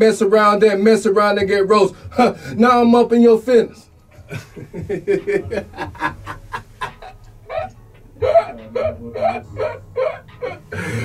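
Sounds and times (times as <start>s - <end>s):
man laughing: 4.2s - 11.0s.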